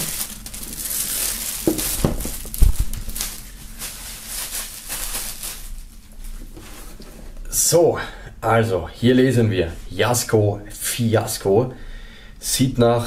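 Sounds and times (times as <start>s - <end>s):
plastic film crinkling: 0.0s - 6.9s
dull thump: 1.7s - 3.1s.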